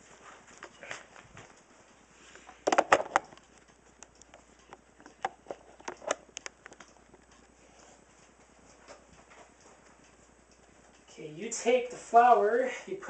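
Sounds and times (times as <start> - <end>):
camera handling knocks and clicks: 2.7 - 3.3.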